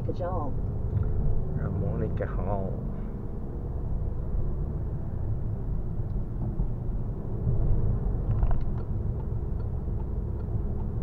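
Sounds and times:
car cabin engine and road rumble: 0.0 - 11.0.

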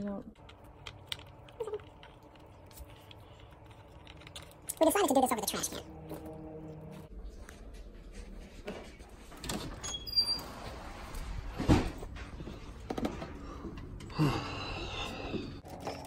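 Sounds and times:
door opening and shutting: 9.4 - 13.4
short high door squeaks: 9.8 - 10.8.

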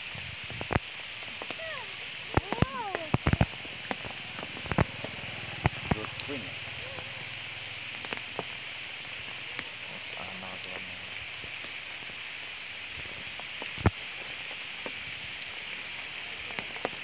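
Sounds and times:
light rain hissing: 0.0 - 17.0
drip-like clicks: 2.3 - 6.4.

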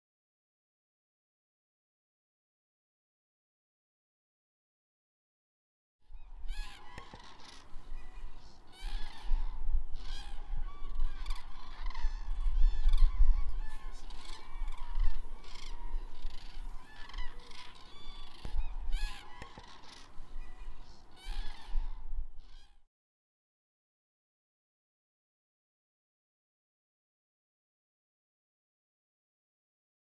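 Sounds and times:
flock of birds calling: 6.2 - 22.8.

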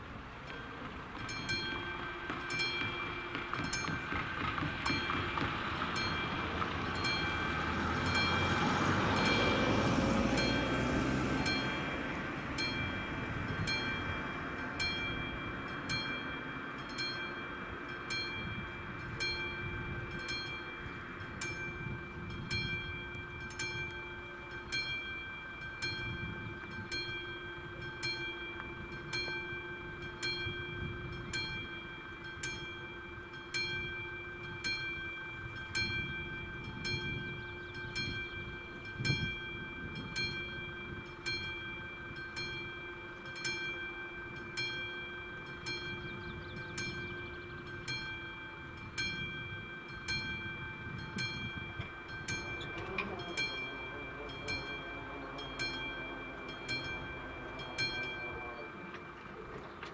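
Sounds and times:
level crossing warning bell: 0.0 - 59.9
car driving past: 4.5 - 14.8.

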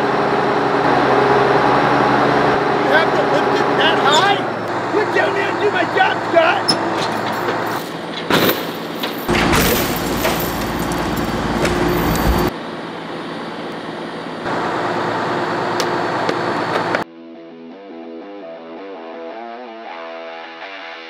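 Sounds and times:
truck engine running: 0.0 - 17.0.

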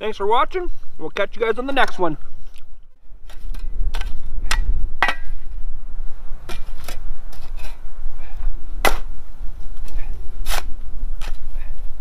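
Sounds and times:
steady low rumble: 0.0 - 12.0
metal shovel scraping soil: 10.4 - 10.7.

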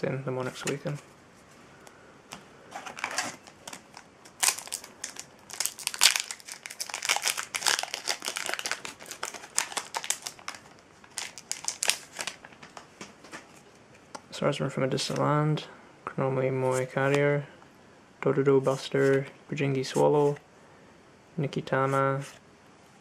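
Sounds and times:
foil wrapper crinkling: 2.8 - 12.9.

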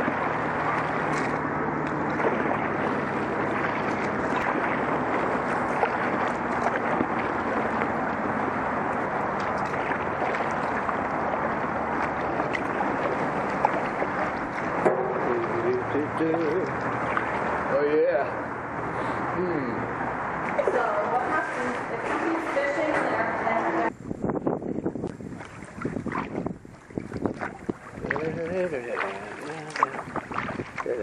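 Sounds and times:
moving water: 0.0 - 31.0
wind noise: 20.3 - 31.0.

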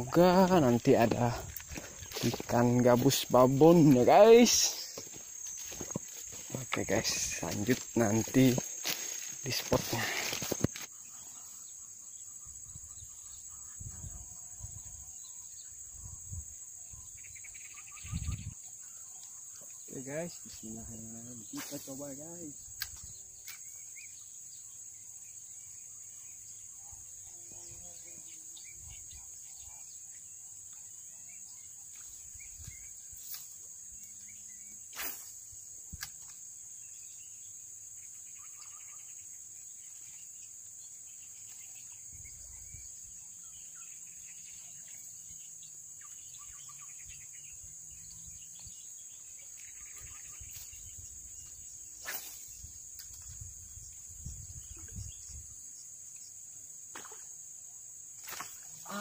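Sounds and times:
high-pitched insect chorus: 0.0 - 59.0.

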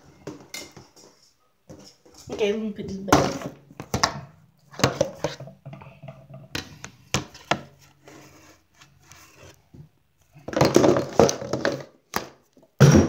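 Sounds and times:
rubbing and rustling: 7.1 - 9.8.

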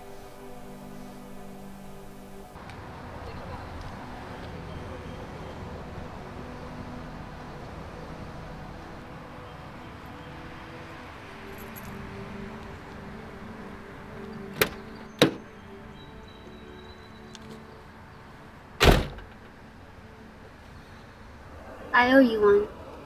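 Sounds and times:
faint background music: 0.0 - 23.0
car door opening clicks: 14.5 - 15.4
car door slamming shut: 14.6 - 15.4, 18.8 - 19.4.

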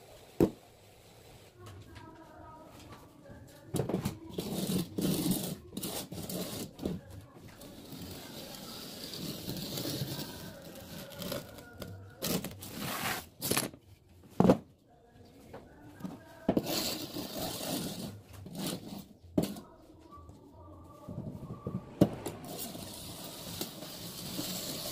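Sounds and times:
wood scraping over mortar: 7.7 - 13.6.

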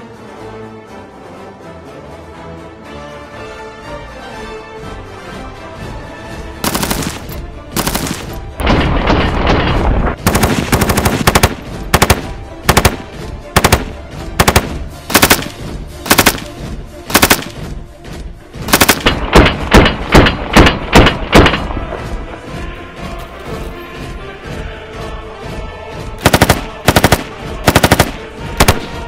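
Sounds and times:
machine gun fire: 6.6 - 17.6, 18.7 - 21.7, 26.2 - 29.0.

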